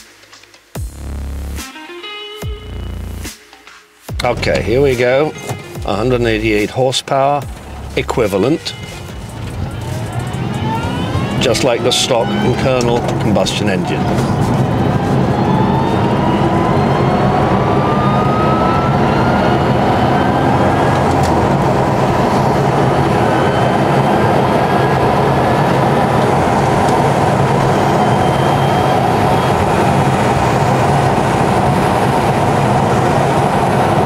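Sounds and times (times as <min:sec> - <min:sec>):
road and wind noise: 0:04.2 - 0:34.0
electric motor whine rising: 0:09.0 - 0:34.0.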